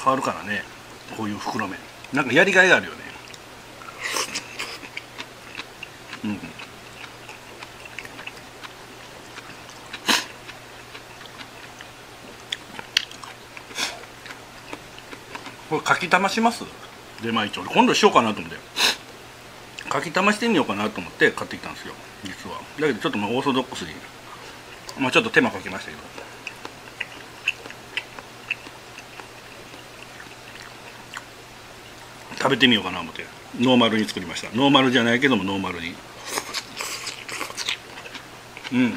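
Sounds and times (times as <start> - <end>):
low steady hum: 0.0 - 38.9
wet chewing: 3.2 - 16.0, 24.3 - 32.4, 36.2 - 38.9.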